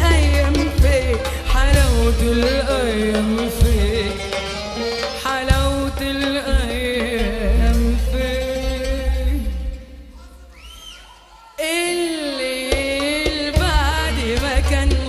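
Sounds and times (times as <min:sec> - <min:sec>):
double bass: 0:00.0 - 0:04.2, 0:05.5 - 0:10.5
hand drums: 0:00.0 - 0:09.9, 0:12.6 - 0:15.0
woman singing into a microphone: 0:00.0 - 0:10.2, 0:11.6 - 0:15.0.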